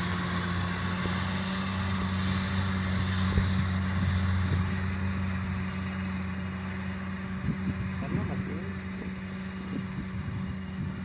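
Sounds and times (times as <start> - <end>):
tractor engine hum: 0.0 - 11.0
disc mower hissing: 1.7 - 5.4.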